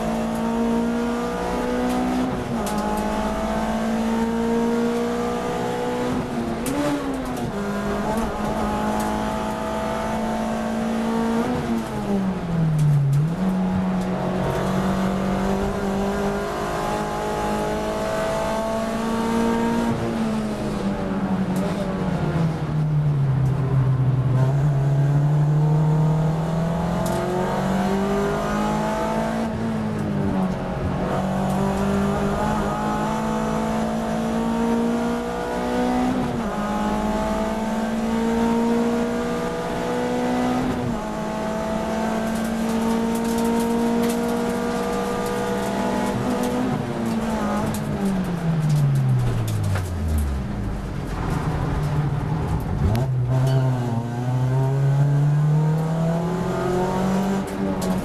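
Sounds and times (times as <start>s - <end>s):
race car engine from cabin: 0.0s - 58.0s.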